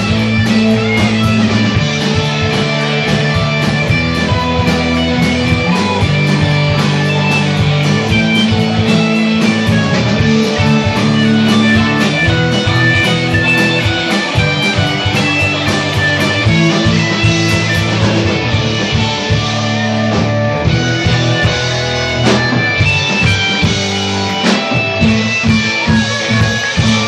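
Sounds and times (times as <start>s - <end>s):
steady cymbal beat: 0.0s - 20.0s
rock band playing live: 0.0s - 27.0s.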